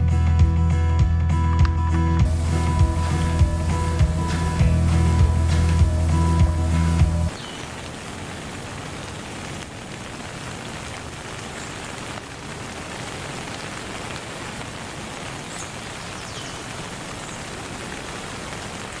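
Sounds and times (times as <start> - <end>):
steady rain: 2.2 - 19.0
faint bird chirps: 7.3 - 7.7.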